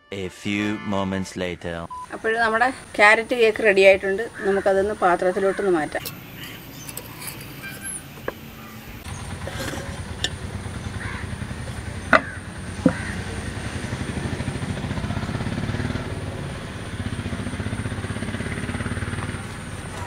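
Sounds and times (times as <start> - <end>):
low engine rumble: 1.1 - 20.0
steel pot and knife clinking: 6.0 - 8.0.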